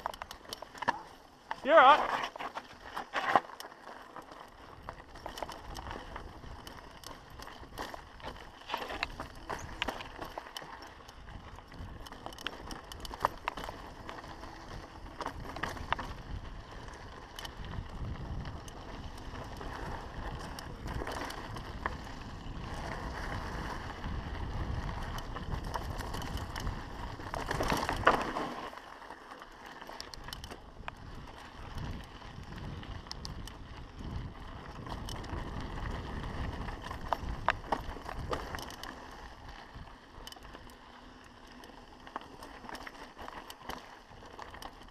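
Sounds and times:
bike clattering clicks and knocks: 0:00.0 - 0:16.2, 0:25.0 - 0:31.0, 0:36.8 - 0:39.0
tyres rolling over dirt and rocks: 0:00.0 - 0:44.9.

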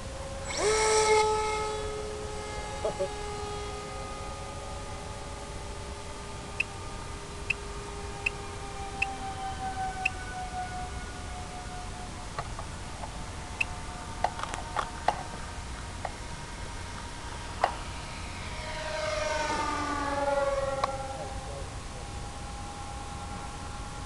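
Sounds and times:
model plane propellers whining: 0:00.0 - 0:24.0
plane passing by: 0:00.0 - 0:24.0.

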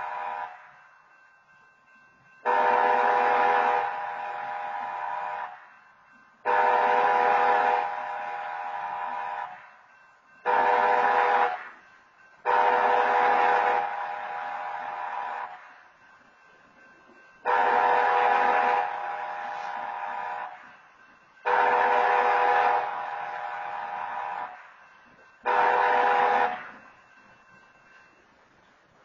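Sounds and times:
locomotive air horn blasts: 0:00.0 - 0:00.7, 0:02.4 - 0:05.6, 0:06.4 - 0:09.7, 0:10.4 - 0:11.8, 0:12.4 - 0:15.6, 0:17.4 - 0:20.6, 0:21.4 - 0:24.6, 0:25.4 - 0:26.8.

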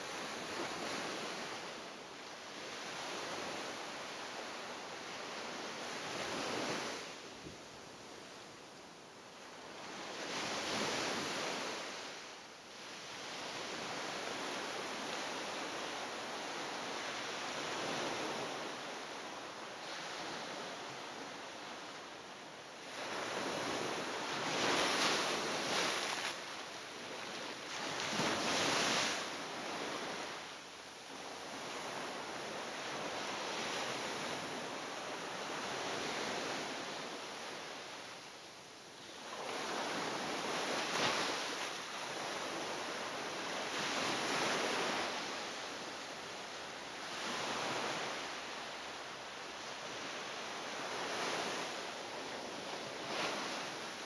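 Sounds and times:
ocean surf breaking on beach: 0:00.0 - 0:54.0.

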